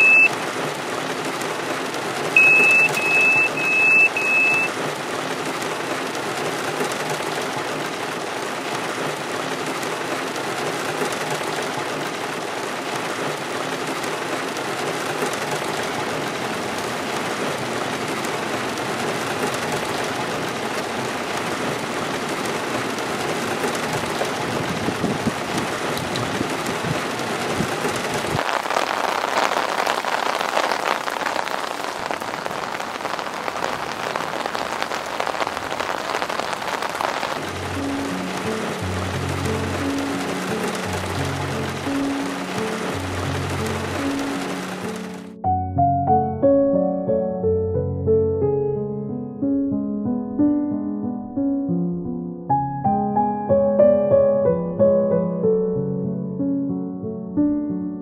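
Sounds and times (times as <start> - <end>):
heavy rain on car roof: 0.0 - 45.4
rain falling in the open: 0.0 - 45.4.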